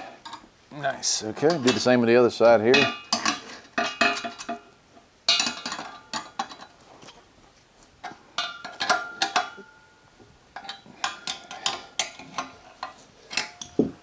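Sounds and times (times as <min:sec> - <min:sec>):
metal bolts and wrench clinking: 0:05.3 - 0:06.8, 0:08.0 - 0:09.8, 0:10.6 - 0:14.0.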